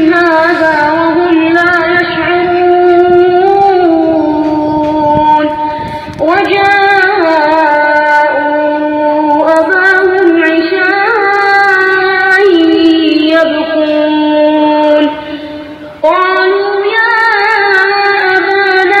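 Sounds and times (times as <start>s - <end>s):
person chanting through loudspeaker: 0.0s - 19.0s.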